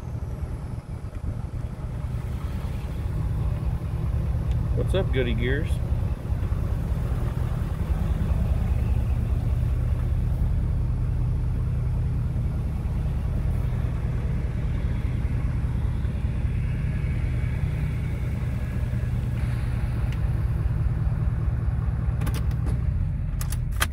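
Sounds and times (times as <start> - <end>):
road noise: 0.0 - 23.9
truck engine drone: 0.0 - 23.9.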